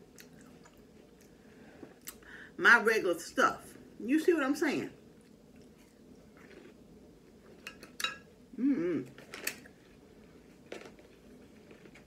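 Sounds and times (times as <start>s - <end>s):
fork clinking on ceramic plate: 7.7s - 8.3s
murmur from full mouth: 8.5s - 9.2s.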